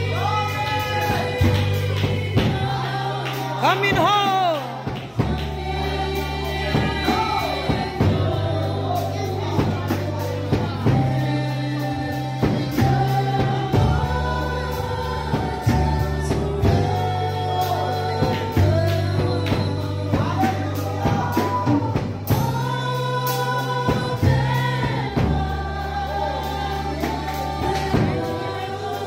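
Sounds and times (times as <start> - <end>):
instrumental backing with bass: 0.0 - 29.0
women singing gospel song: 0.0 - 29.0.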